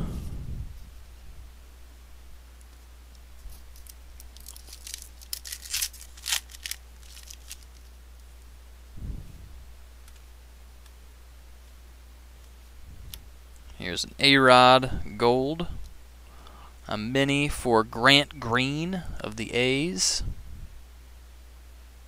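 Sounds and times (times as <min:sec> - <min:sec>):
wrapper crinkling and tearing: 0:03.5 - 0:07.9.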